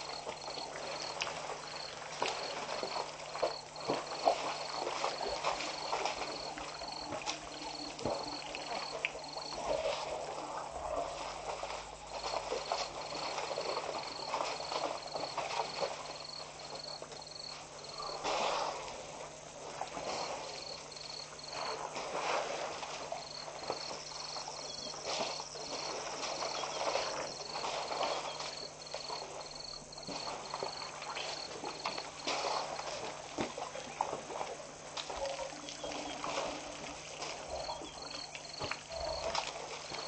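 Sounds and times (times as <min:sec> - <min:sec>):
water splashing: 0:00.0 - 0:40.0
elephants shuffling: 0:24.2 - 0:33.1.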